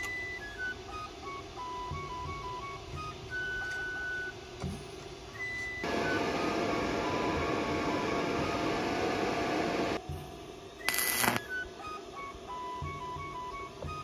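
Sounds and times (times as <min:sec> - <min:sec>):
soft background music: 0:00.0 - 0:14.0
welder cooling fan rushing: 0:05.8 - 0:10.1, 0:10.8 - 0:11.5.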